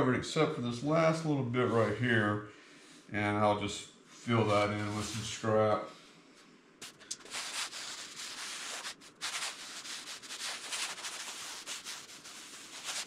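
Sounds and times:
palms swishing over balsa wood: 6.8 - 13.0.

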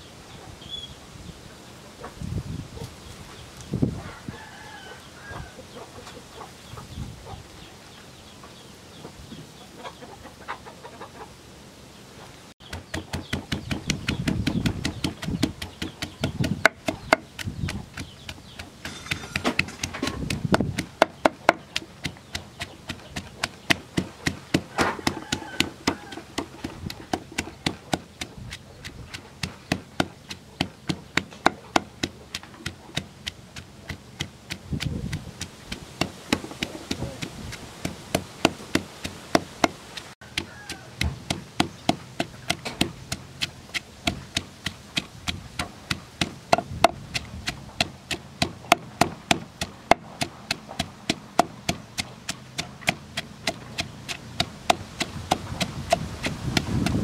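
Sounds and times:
pestle pounding in wooden mortar: 12.6 - 57.0.

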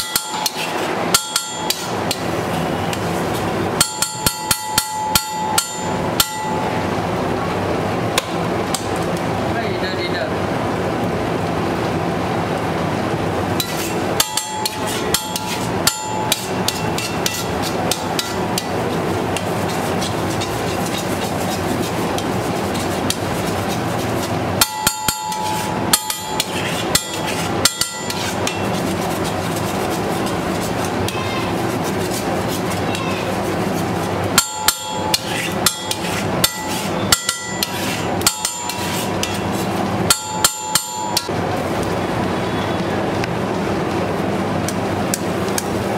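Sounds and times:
metal spatula scraping on griddle: 0.0 - 6.6, 13.6 - 41.2
steady background noise: 0.0 - 45.9.

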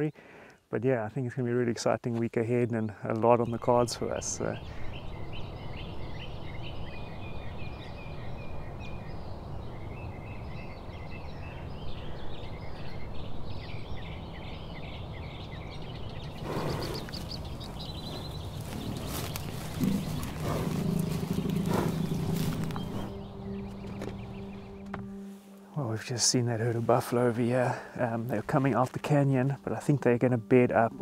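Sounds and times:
small birds chirping: 1.8 - 31.0
wind rumble: 3.6 - 25.2
low drawn-out tone: 20.5 - 27.4.

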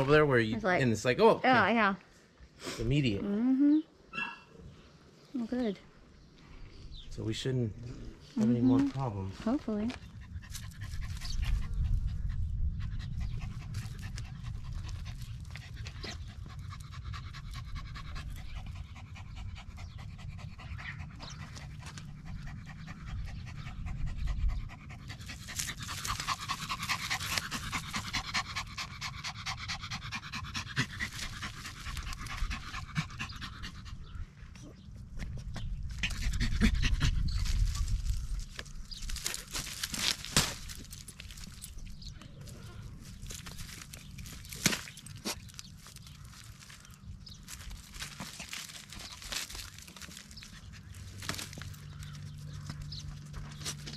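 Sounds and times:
dog panting rapidly: 10.0 - 34.2.

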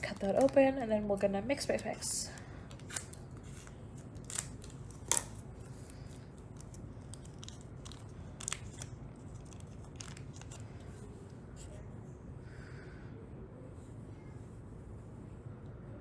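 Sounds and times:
scissors snipping packet: 2.7 - 5.5, 6.1 - 10.6.

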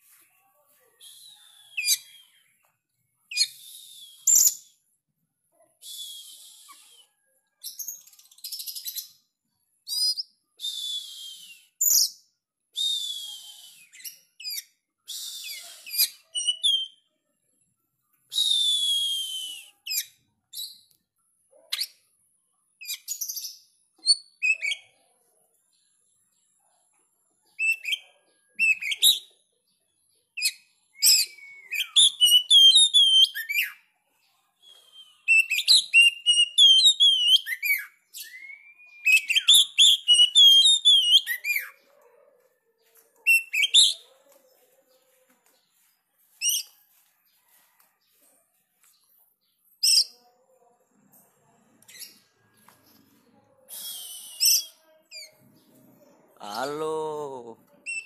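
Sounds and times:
bird song with whistles: 1.0 - 2.6, 3.3 - 4.8, 5.8 - 9.1, 9.9 - 17.1, 18.3 - 20.8, 22.8 - 24.9, 27.6 - 28.0, 28.6 - 29.3, 30.4 - 33.8, 34.6 - 41.8, 43.3 - 44.0, 53.7 - 55.3.

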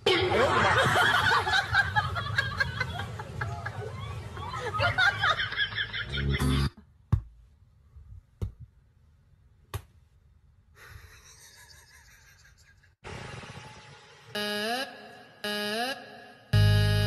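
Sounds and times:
people talking and laughing: 0.0 - 6.6.

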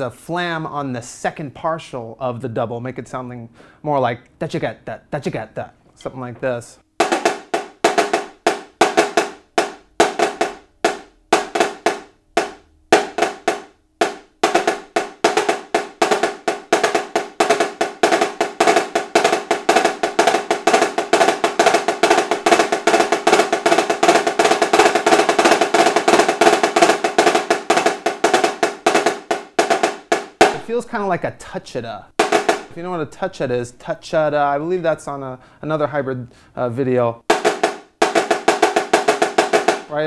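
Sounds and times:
marching snare drum: 7.0 - 33.8, 37.3 - 39.9.

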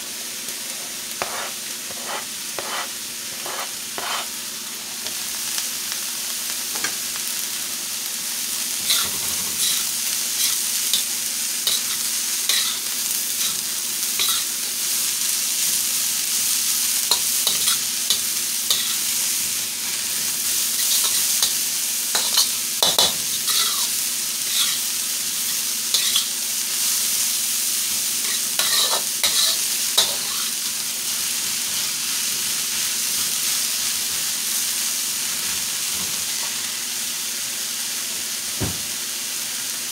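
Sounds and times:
vegetables sizzling in a wok: 0.0 - 39.9
metal spatula scraping a wok: 1.2 - 4.3, 8.8 - 11.1, 11.7 - 13.6, 14.2 - 14.5, 17.1 - 19.1, 20.7 - 26.3, 28.2 - 30.5.

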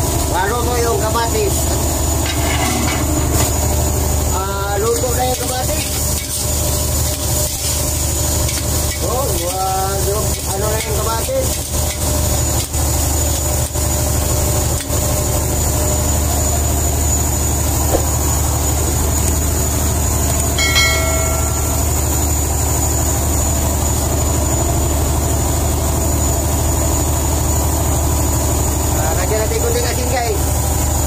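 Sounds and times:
boat engine drone: 15.1 - 31.0
short high chime: 20.6 - 22.4.

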